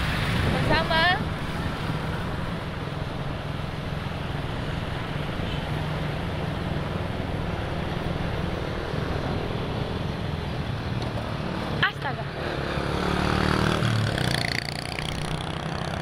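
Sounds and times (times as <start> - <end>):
wind over microphone: 0.0 - 4.9
motorcycle engines humming: 0.0 - 16.0.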